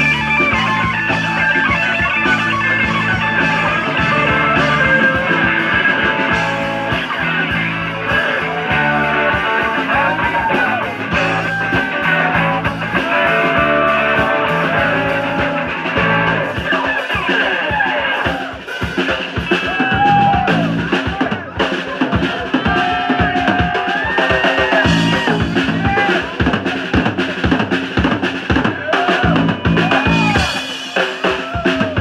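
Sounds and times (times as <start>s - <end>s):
electric guitar bending notes: 0.0s - 18.4s
live rock band: 0.0s - 32.0s.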